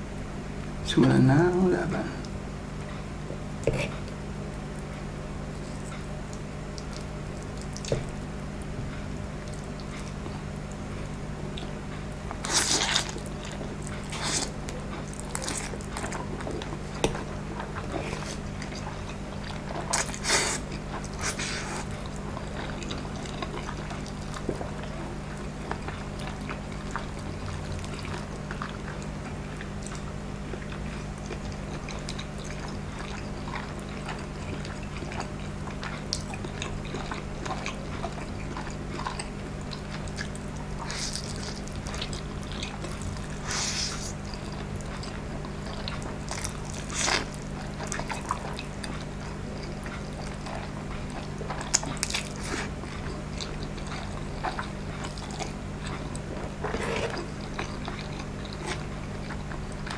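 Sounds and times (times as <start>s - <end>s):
steady low hum: 0.0s - 59.9s
chewing: 2.2s - 59.9s
slurping noodles: 56.6s - 57.8s.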